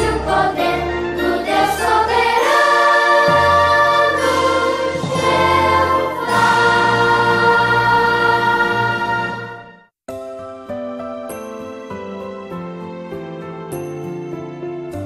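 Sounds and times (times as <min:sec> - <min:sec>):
choir singing: 0:00.0 - 0:09.8
orchestral accompaniment: 0:00.0 - 0:14.7.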